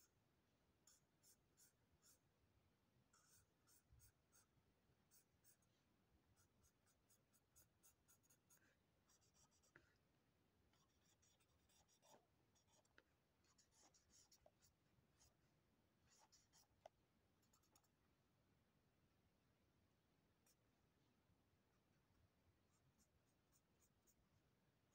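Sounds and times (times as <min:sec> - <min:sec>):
marker scratching on paper: 0:00.8 - 0:02.2, 0:03.1 - 0:05.7, 0:06.4 - 0:09.8, 0:10.8 - 0:15.4, 0:16.1 - 0:16.8, 0:22.8 - 0:24.2.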